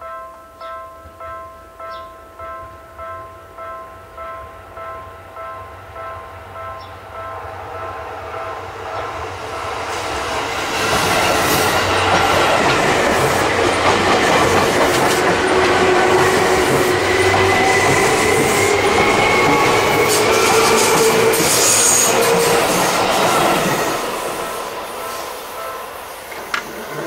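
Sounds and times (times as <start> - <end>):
train wheels clattering on rails: 9.0 - 27.0.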